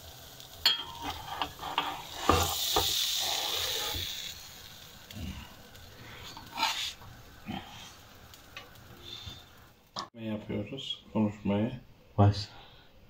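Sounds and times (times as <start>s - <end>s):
sizzling in a frying pan: 0.0s - 10.2s.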